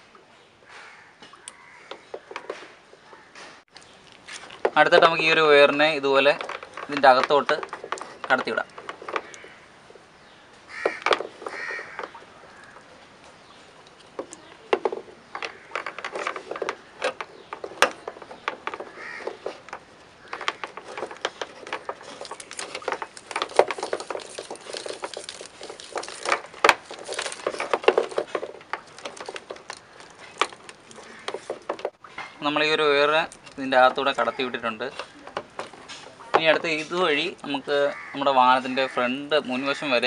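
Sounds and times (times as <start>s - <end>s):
electrical wires rustling and scraping: 1.6s - 40.0s
bird calling: 7.7s - 23.9s, 28.8s - 32.5s, 33.8s - 40.0s.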